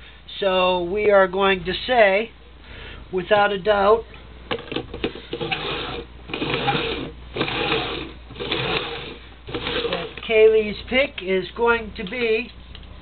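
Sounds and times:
plastic cups scraping on wooden floor: 4.8s - 10.3s.

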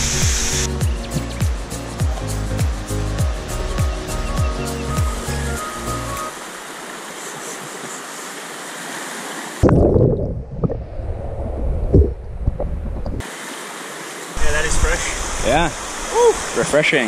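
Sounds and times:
rushing waterfall: 0.0s - 9.7s, 13.2s - 17.0s.

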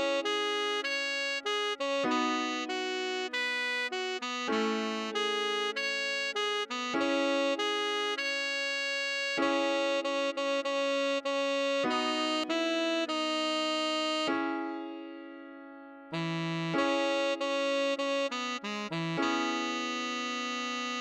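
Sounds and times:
tenor saxophone melody: 0.0s - 15.2s, 16.1s - 21.0s.

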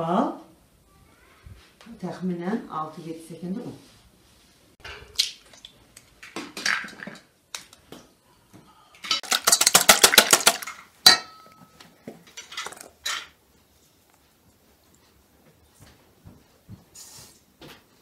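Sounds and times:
eggs cracking: 5.0s - 7.8s, 9.1s - 11.6s, 12.2s - 13.3s.

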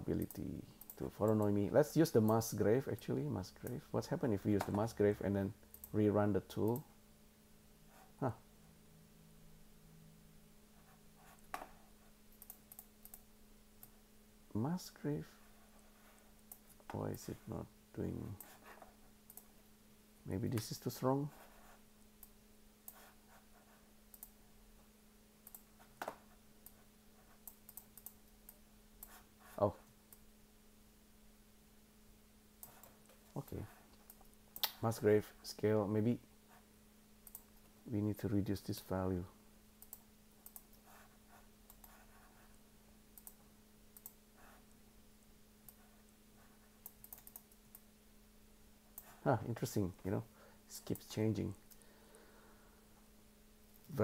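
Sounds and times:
faint electrical hum: 0.0s - 54.0s.

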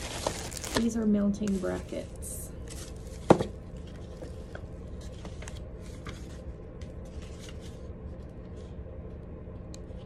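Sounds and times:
paper manual rustling: 0.0s - 2.0s, 2.6s - 8.7s.

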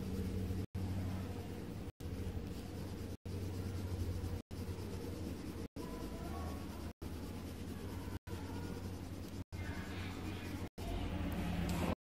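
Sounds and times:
low steady hum: 0.0s - 12.0s
pencil scratching on paper: 2.0s - 10.8s.

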